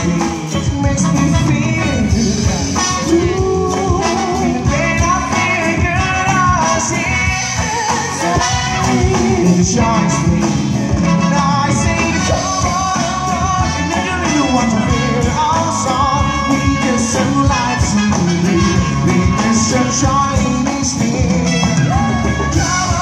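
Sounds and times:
live band playing: 0.0 - 23.0
man singing: 0.0 - 23.0.

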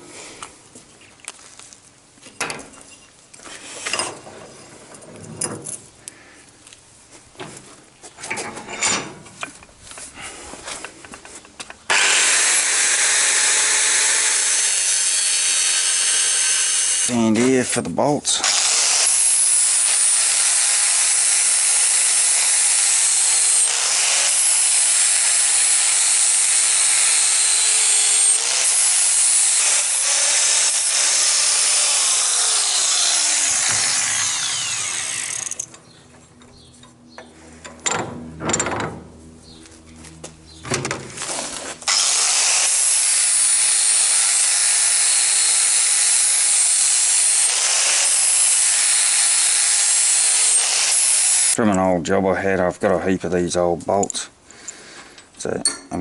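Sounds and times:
clanks and knocks of handling: 2.2 - 3.2, 3.8 - 5.9, 8.2 - 10.1, 35.6 - 39.1
angle grinder cutting steel: 11.9 - 17.6, 18.3 - 35.8, 41.2 - 51.6.

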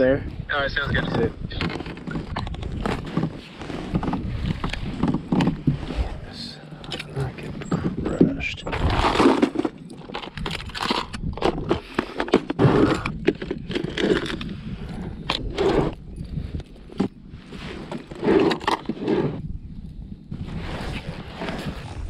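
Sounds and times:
plastic tackle box handled: 1.5 - 5.8, 7.0 - 14.6, 17.7 - 19.3.

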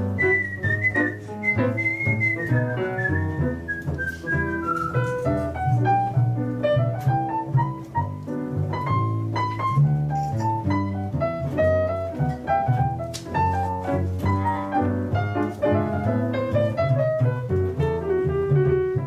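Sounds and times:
whistled melody: 0.0 - 6.0
jazz piano: 0.0 - 19.0
upright double bass: 0.0 - 19.0.

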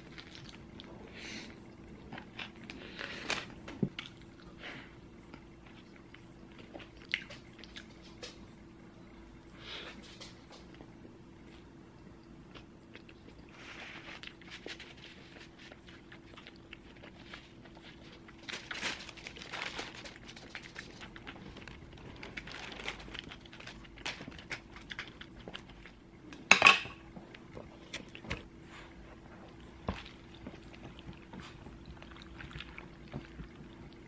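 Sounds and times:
plastic bag crinkling: 17.1 - 25.2.

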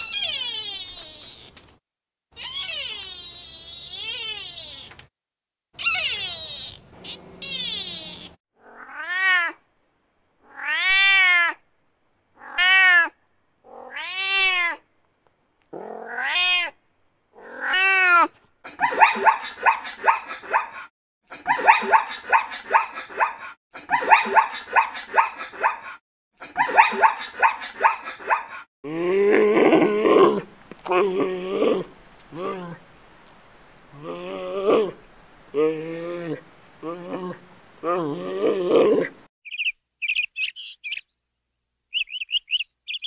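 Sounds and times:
animal crying: 0.0 - 1.5, 2.4 - 4.9, 5.8 - 9.6, 12.4 - 14.8, 26.6 - 32.8.

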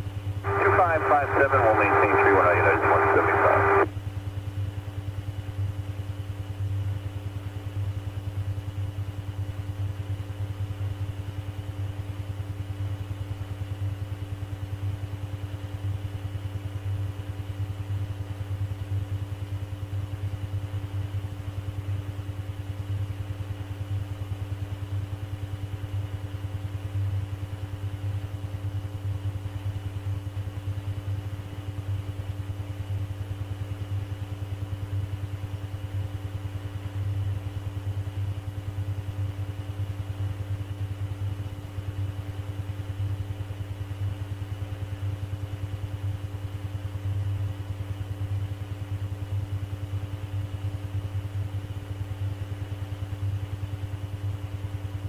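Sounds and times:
low recording hum: 0.0 - 3.9.

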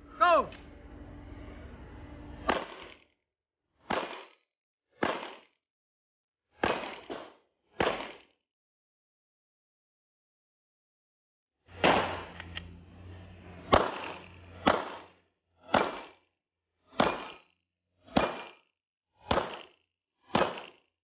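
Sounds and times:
handgun shots: 2.4 - 3.0, 3.9 - 4.4, 5.0 - 5.5, 6.6 - 8.3, 13.7 - 15.1, 15.7 - 16.2, 16.9 - 17.5, 18.1 - 18.6, 19.2 - 20.8.

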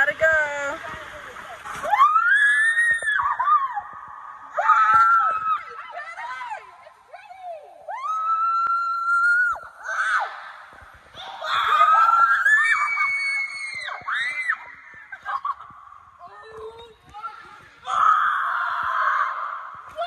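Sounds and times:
girls screaming: 1.8 - 15.6, 17.8 - 20.0
girls laughing: 14.6 - 16.1.

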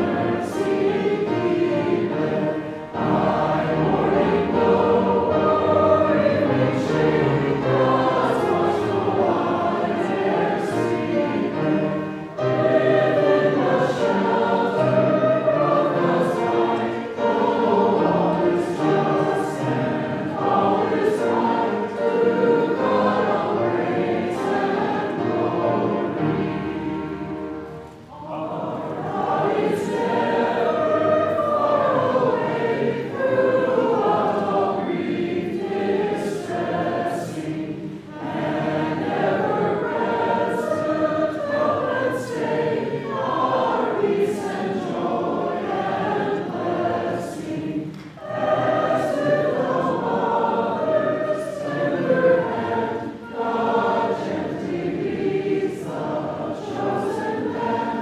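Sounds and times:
congregation singing a hymn: 0.0 - 58.0.

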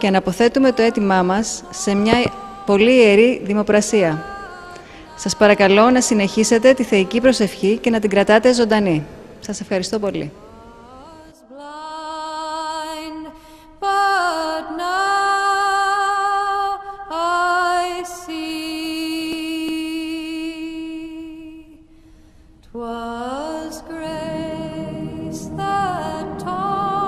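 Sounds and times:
woman singing long notes: 0.0 - 8.0, 22.7 - 27.0.

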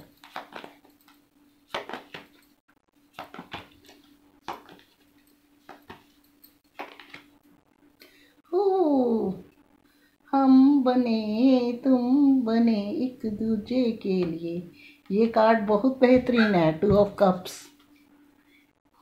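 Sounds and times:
cards shuffling: 0.0 - 2.4, 3.1 - 7.3
faint steady hum: 0.0 - 19.0.

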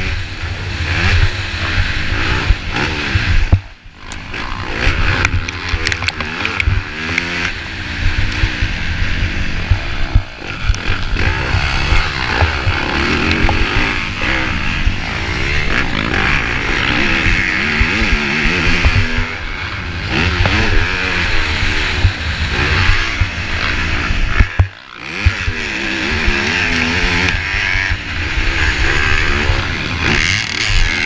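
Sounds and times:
motocross bike engine revving: 0.0 - 31.0
wind thumps on microphone: 0.9 - 3.8, 4.9 - 19.4, 20.1 - 26.4.

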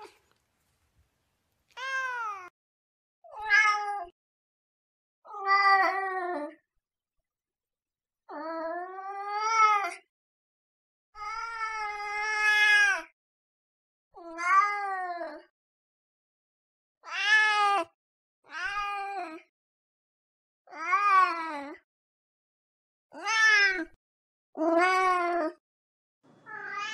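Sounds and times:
cat meowing: 1.8 - 2.5, 26.4 - 26.9.

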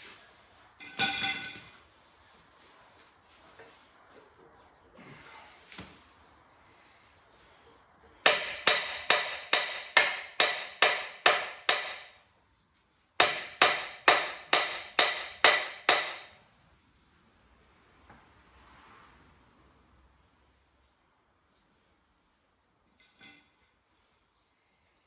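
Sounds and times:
hammer striking metal: 0.8 - 1.7, 8.2 - 12.2, 13.2 - 16.4.

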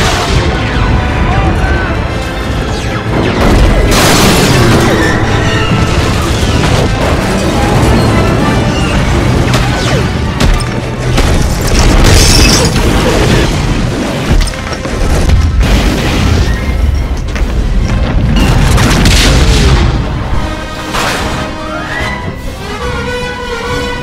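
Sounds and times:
explosions: 0.0 - 1.5, 3.0 - 21.4
loud orchestral score: 0.0 - 11.0, 19.6 - 24.0.

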